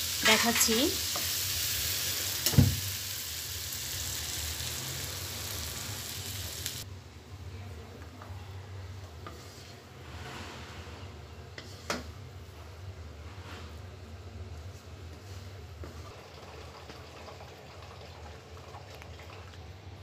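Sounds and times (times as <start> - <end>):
food sizzling in a wok: 0.0 - 6.9, 13.2 - 17.7
wooden spatula scraping wok: 8.9 - 16.1.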